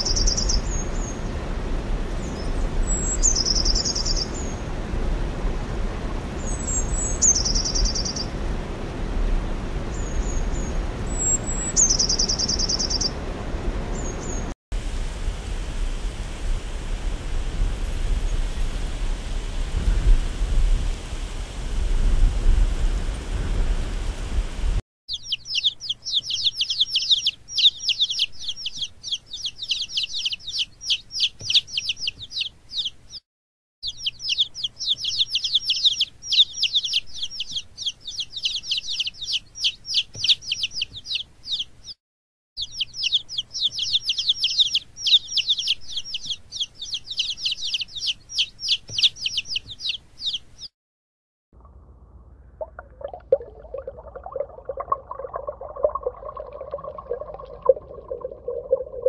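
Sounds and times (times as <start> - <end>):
rushing noise with deep rumble: 0.3 - 24.8
baby chicks peeping: 25.1 - 33.2, 33.8 - 42.0, 42.6 - 50.7.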